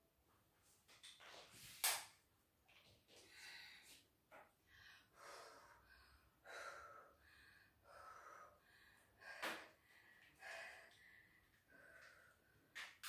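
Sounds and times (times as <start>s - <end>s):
woman breathing heavily: 3.1s - 12.8s.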